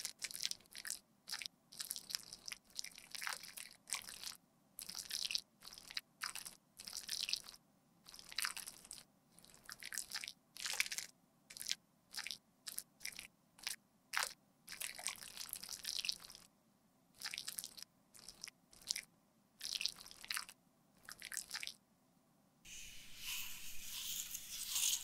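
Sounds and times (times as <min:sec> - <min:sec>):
metal spatula scraping cream makeup: 0:22.7 - 0:25.0.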